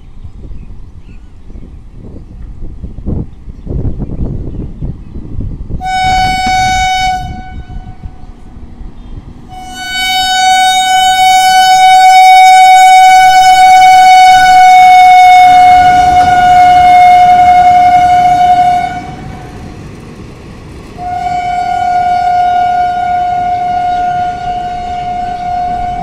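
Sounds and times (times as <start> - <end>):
train horn blasts: 5.8 - 8.3, 9.5 - 19.6, 21.0 - 26.0.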